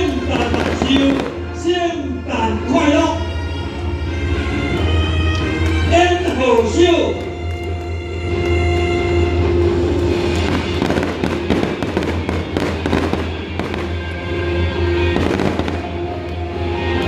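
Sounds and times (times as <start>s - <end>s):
fireworks bangs and crackles: 0.0s - 1.6s, 9.8s - 16.5s
music playing: 0.0s - 17.0s.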